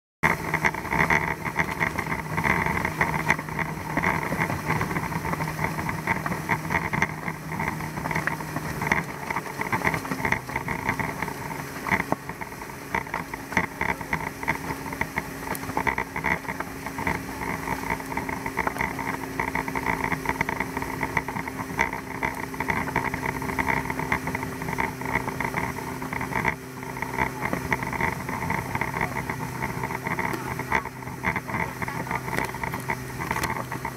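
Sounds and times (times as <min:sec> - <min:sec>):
outboard engine running: 0:00.2 - 0:33.9
rush of boat wake: 0:00.2 - 0:33.9.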